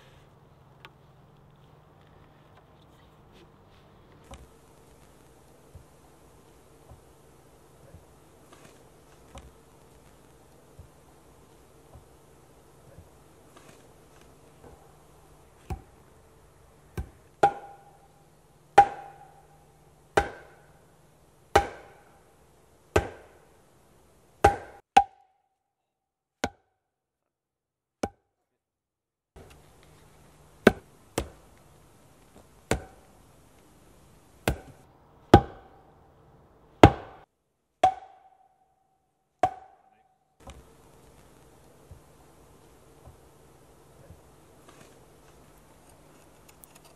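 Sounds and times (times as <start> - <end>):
log pounding wooden post: 17.0 - 18.0, 18.8 - 19.4, 20.2 - 20.7, 21.5 - 22.1, 23.0 - 23.4, 24.4 - 25.2, 30.6 - 31.4, 32.7 - 33.0, 34.4 - 35.8, 36.8 - 37.2, 37.8 - 38.4, 39.4 - 39.8.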